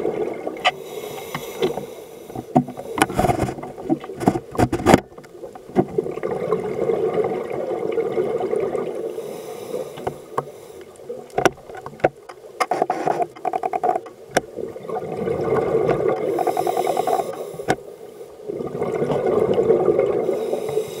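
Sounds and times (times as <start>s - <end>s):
exhaled bubbles underwater: 0.0s - 0.7s, 5.3s - 9.2s, 14.5s - 17.4s, 18.4s - 20.7s.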